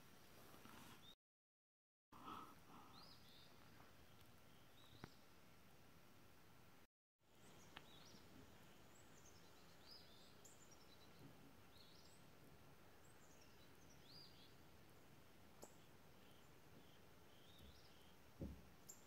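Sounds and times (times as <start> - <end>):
faint woodland ambience: 0.0 - 1.2, 2.2 - 19.0
bird chirping: 2.8 - 5.3, 7.3 - 19.0.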